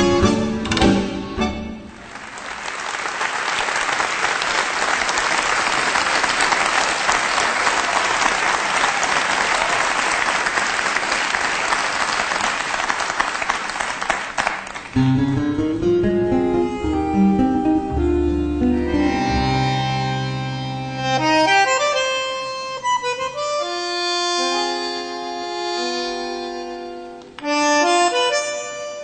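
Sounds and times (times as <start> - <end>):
bandoneon tango music: 0.0 - 2.0, 14.9 - 29.0
audience applauding: 1.9 - 15.0
plucked strings: 15.0 - 20.8.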